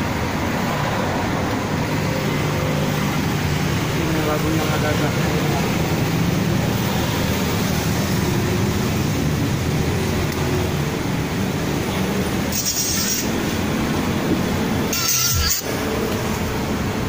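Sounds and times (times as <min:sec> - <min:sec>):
loud car stereo music: 0:14.9 - 0:15.7.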